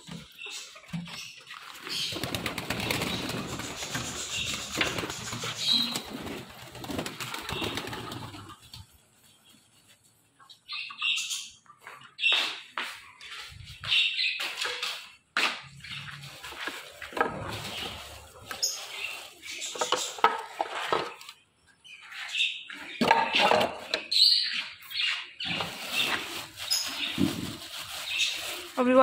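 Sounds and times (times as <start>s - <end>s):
small birds chirping: 0.0s - 29.0s
handling noises: 11.9s - 21.4s
plastic bag rustling: 15.9s - 21.2s, 25.4s - 29.0s.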